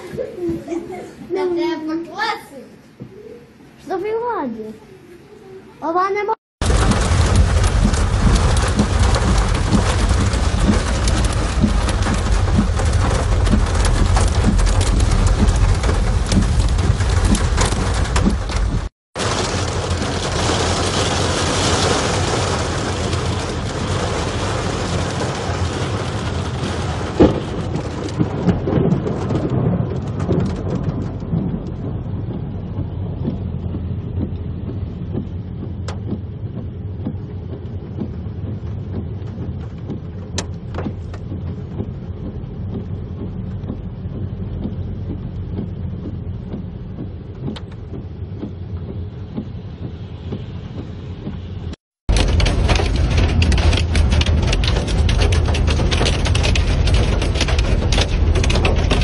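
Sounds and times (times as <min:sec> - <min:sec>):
hail and rain hitting car roof: 0:06.6 - 0:46.2, 0:52.0 - 0:59.0
car road and engine rumble: 0:06.6 - 0:59.0.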